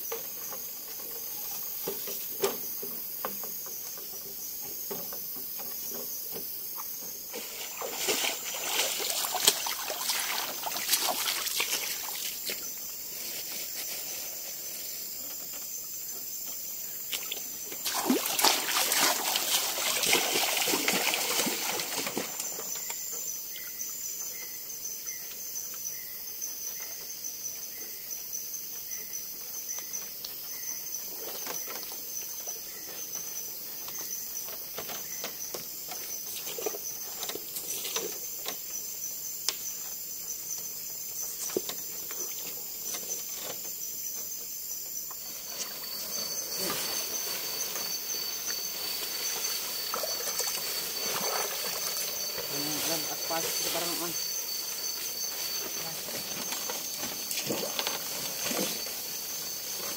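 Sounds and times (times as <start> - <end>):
forest insects chorus: 0.0 - 59.9
water splashing and sloshing: 5.6 - 12.6, 17.1 - 22.9, 45.5 - 59.9.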